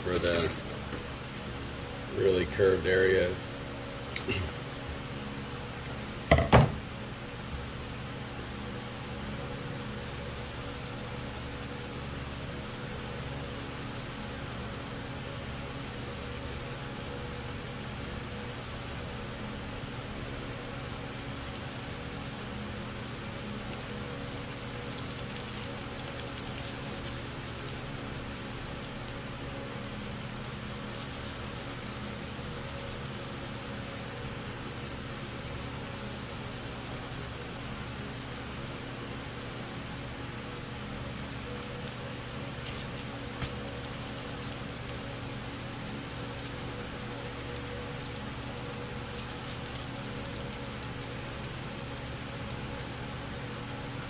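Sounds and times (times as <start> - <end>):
sanding sponge rubbing plastic: 9.9 - 28.9, 30.9 - 40.2, 43.6 - 54.0.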